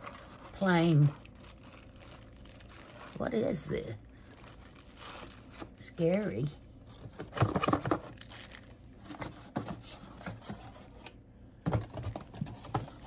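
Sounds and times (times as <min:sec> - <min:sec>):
cardboard packaging rustling and tearing: 0:00.0 - 0:13.0.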